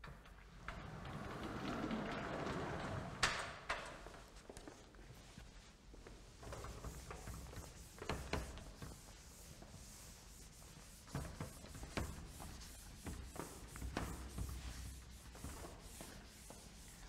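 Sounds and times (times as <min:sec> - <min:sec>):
eraser wiping chalkboard: 0:05.2 - 0:17.0.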